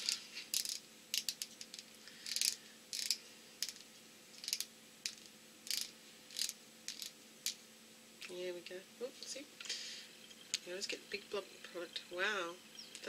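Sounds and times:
small plastic clicks: 0.5s - 3.8s, 4.4s - 7.6s.

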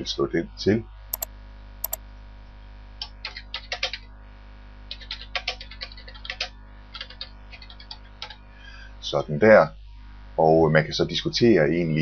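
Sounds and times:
typing on a keyboard: 1.2s - 2.0s.

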